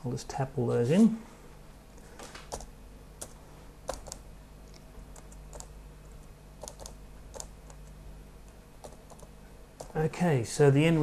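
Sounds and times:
faint steady hum: 0.0s - 11.0s
keys tapping: 5.1s - 8.0s.

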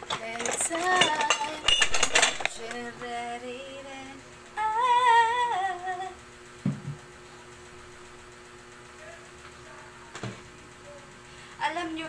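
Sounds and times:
dull knock: 6.6s - 7.0s.

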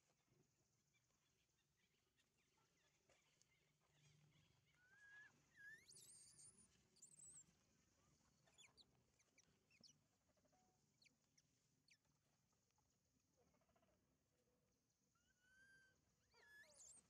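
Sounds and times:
high-pitched animal calls: 15.2s - 17.0s.

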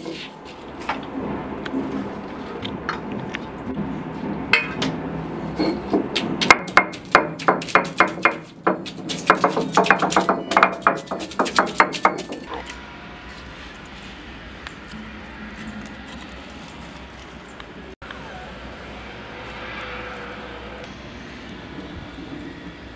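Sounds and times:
stone roller knocking on stone: 5.6s - 12.5s.

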